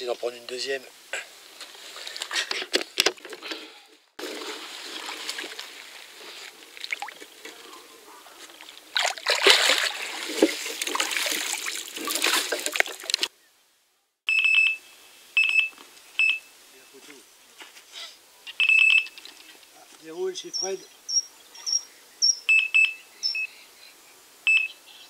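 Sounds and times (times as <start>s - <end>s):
water sloshing and splashing: 4.2s - 13.3s
bite alarm high beep: 18.6s - 19.2s, 20.6s - 23.5s, 24.5s - 24.8s.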